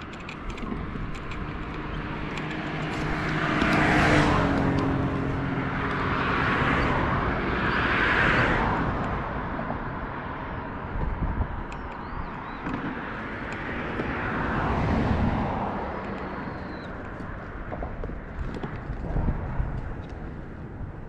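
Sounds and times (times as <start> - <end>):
cars passing: 0.0 - 21.0
steady low rumble: 14.8 - 21.0.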